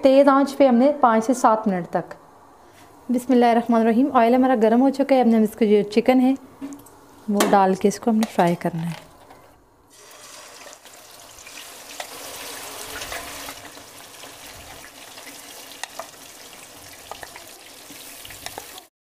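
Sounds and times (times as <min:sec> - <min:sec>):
chicken sizzling in hot oil: 0:09.9 - 0:18.9
oil spitting and crackling: 0:10.0 - 0:18.9.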